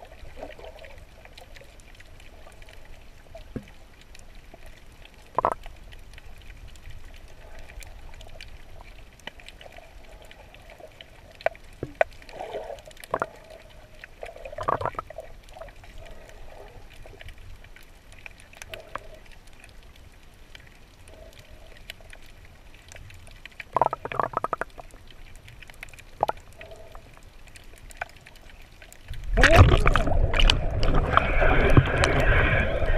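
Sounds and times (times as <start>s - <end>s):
muffled underwater rush: 0.0s - 32.9s
bubbly gurgles: 5.2s - 5.7s, 12.3s - 16.9s, 23.6s - 25.0s, 29.1s - 32.9s.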